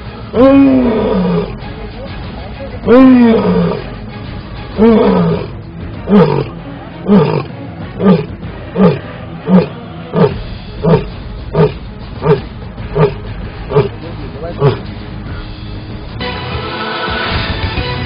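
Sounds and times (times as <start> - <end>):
lion roaring in deep grunts: 0.4 - 1.6, 2.9 - 3.9, 4.8 - 14.9.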